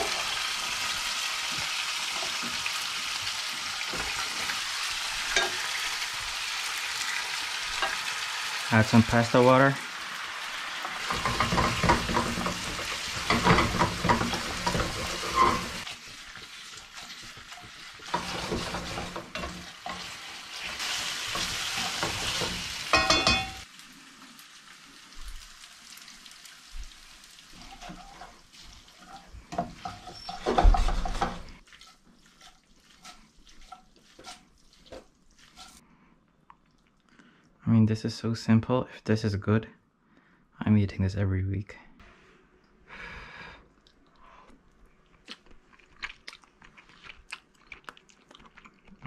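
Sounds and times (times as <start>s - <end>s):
pasta sizzling in a frying pan: 0.0s - 35.8s.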